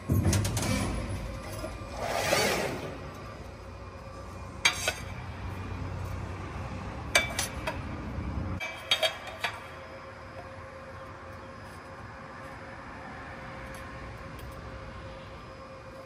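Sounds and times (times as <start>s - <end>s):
steel parts clanking on metal: 0.1s - 3.2s, 7.1s - 7.8s.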